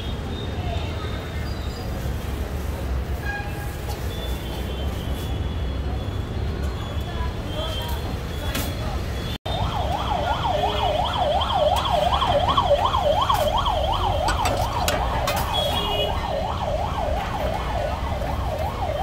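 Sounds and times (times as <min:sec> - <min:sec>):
warbling siren: 0:09.5 - 0:19.0.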